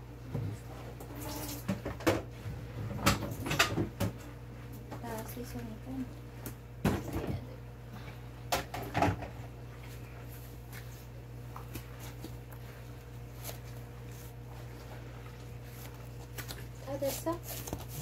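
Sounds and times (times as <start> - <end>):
steady low hum: 0.0 - 18.0
hands squishing vegetables: 9.7 - 18.0.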